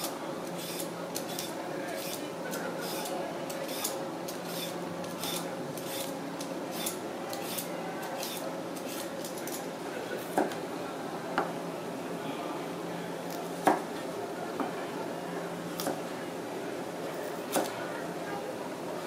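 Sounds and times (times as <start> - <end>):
peeler scraping carrot: 2.8 - 6.1, 6.7 - 9.6.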